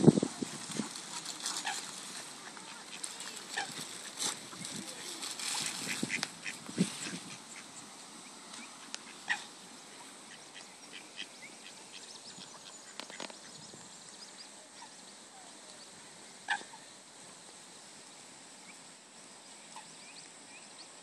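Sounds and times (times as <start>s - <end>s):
faint background hiss: 0.0s - 21.0s
waterbirds calling: 1.2s - 17.0s.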